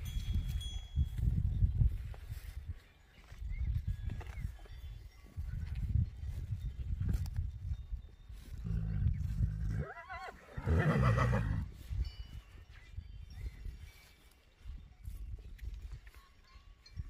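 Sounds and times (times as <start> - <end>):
horse whinnying: 9.6 - 11.7.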